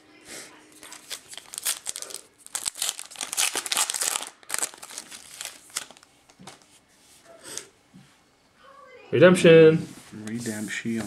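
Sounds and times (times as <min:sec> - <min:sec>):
foil wrapper tearing and crinkling: 0:00.8 - 0:06.6.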